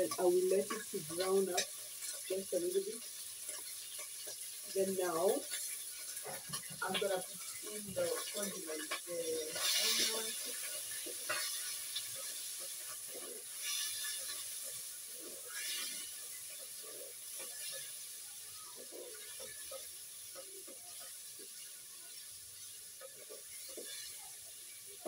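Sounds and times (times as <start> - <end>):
food sizzling in oil: 0.0 - 25.0.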